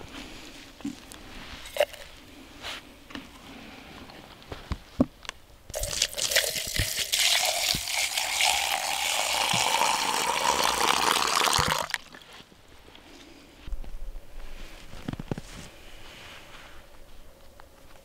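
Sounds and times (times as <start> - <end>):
water pouring into a cup: 5.7 - 12.2.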